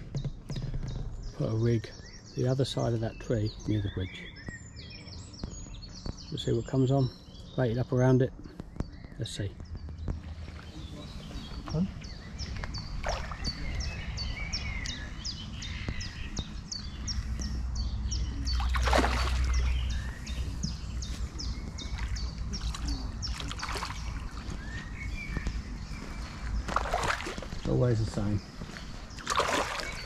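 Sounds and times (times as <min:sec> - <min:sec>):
fish thrashing and splashing: 0:12.9 - 0:13.8, 0:18.5 - 0:20.1, 0:21.9 - 0:24.6, 0:26.6 - 0:27.7, 0:29.2 - 0:30.0.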